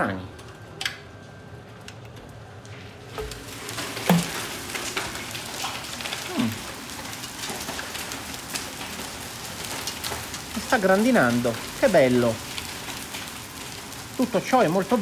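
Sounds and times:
hail and rain on stone paving: 0:02.3 - 0:15.0.

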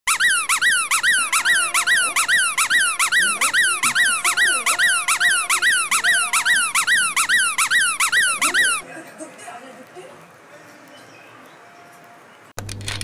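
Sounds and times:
squeaky dog toy squeaking: 0:00.1 - 0:08.8.

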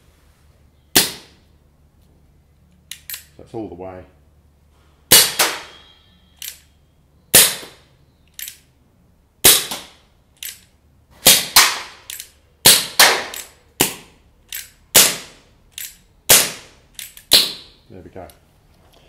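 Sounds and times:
air pistol shots cracking: 0:01.0 - 0:01.4, 0:05.1 - 0:05.8, 0:07.3 - 0:07.8, 0:09.4 - 0:10.6, 0:11.2 - 0:15.4, 0:16.3 - 0:17.7
revolver hammer cocking clicks: 0:06.4 - 0:06.7, 0:08.3 - 0:08.6, 0:12.0 - 0:12.4.

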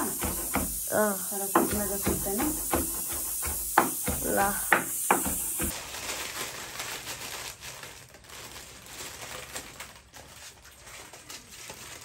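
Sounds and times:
plastic packets crinkling: 0:05.4 - 0:12.0.

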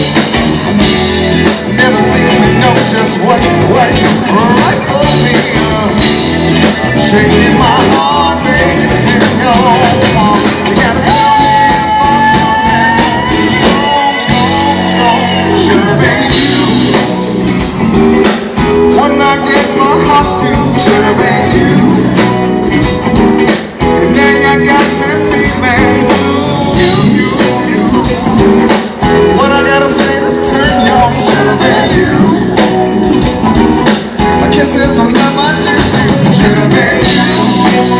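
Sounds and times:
blues-rock band playing: 0:00.0 - 0:37.9
man singing through pa: 0:01.7 - 0:17.3, 0:18.9 - 0:22.2, 0:23.8 - 0:28.2, 0:29.2 - 0:32.6, 0:34.2 - 0:37.9.

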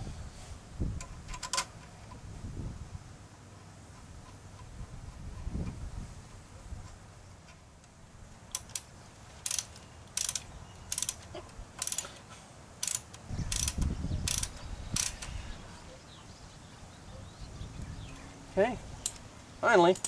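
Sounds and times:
hand ratchet clicking: 0:08.5 - 0:15.4.

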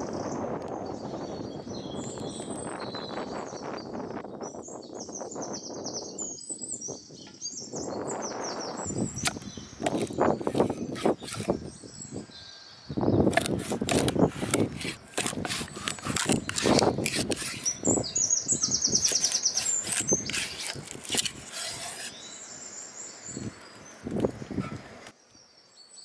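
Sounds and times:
bird trilling: 0:08.9 - 0:24.0
knife crunching through fish: 0:09.2 - 0:11.6, 0:13.3 - 0:18.0, 0:18.8 - 0:22.2.

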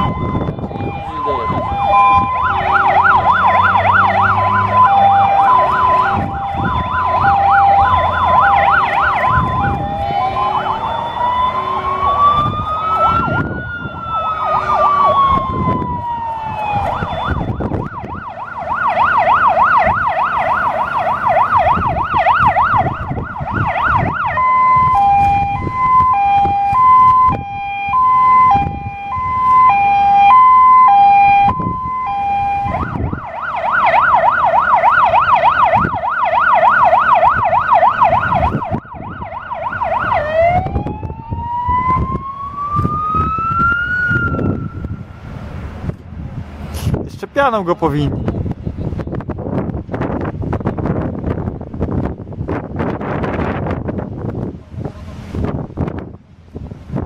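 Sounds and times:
siren warbling yelp: 0:00.0 - 0:45.2
two-tone hi-lo siren: 0:00.0 - 0:45.3
siren slow wail: 0:00.0 - 0:46.7, 0:49.0 - 0:57.0.

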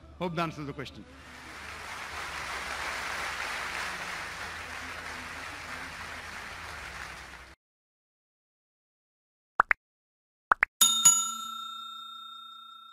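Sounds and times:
large audience applauding: 0:01.2 - 0:07.6.

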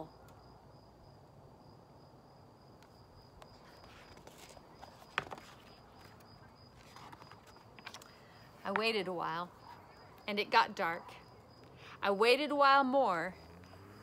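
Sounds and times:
cricket trilling: 0:00.0 - 0:12.4, 0:13.3 - 0:14.0
paper pages rustling: 0:03.5 - 0:08.2.

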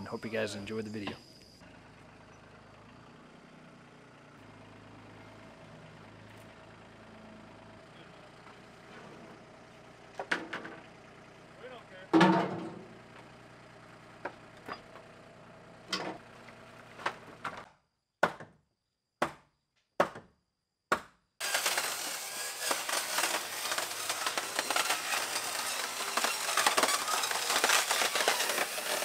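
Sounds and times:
lumber and metal clattering: 0:12.1 - 0:12.9
saw cutting wood: 0:21.4 - 0:29.0.

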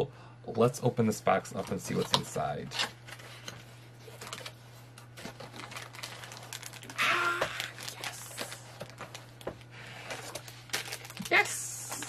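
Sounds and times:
steady low hum: 0:00.0 - 0:12.0
box and packaging rustling: 0:01.6 - 0:12.0
plastic crinkling: 0:03.0 - 0:12.0.

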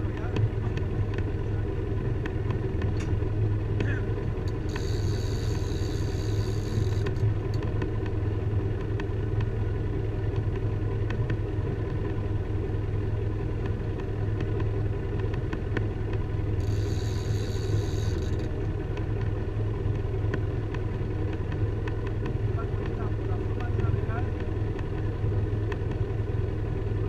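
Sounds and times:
boat engine humming: 0:00.0 - 0:27.0
fishing reel whirring: 0:04.5 - 0:07.3, 0:16.6 - 0:18.6.

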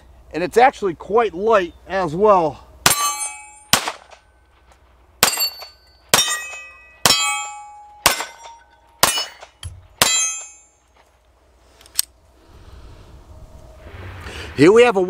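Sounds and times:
pistol shots: 0:02.8 - 0:04.2, 0:05.2 - 0:10.5
steel target clanging: 0:02.8 - 0:04.2, 0:05.2 - 0:11.0.

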